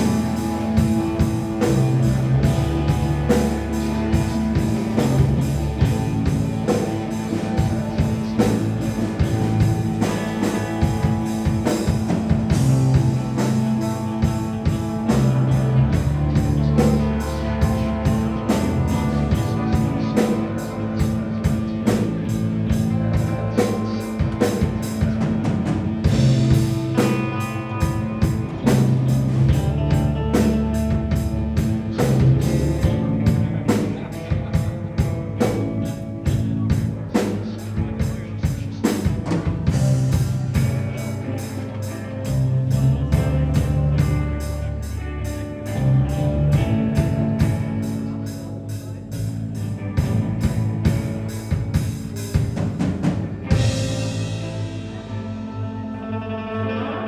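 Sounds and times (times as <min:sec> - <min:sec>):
drum kit playing fast: 0:00.0 - 0:55.2
electric guitars: 0:00.0 - 0:57.0.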